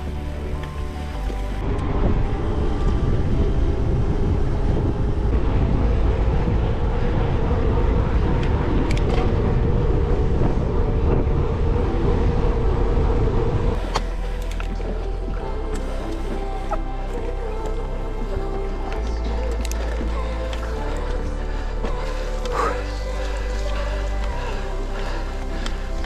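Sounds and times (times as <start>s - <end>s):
wind buffeting microphone: 1.5s - 15.4s.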